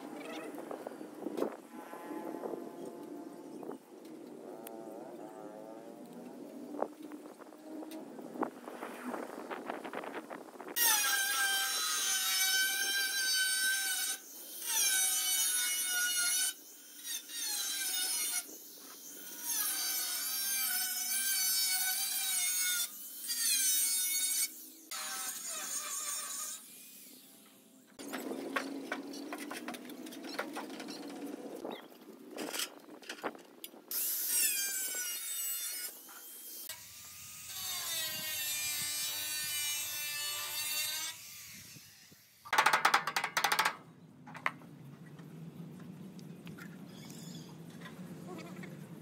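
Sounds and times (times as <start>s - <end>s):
angle grinder cutting steel: 10.8s - 27.2s, 33.9s - 42.3s.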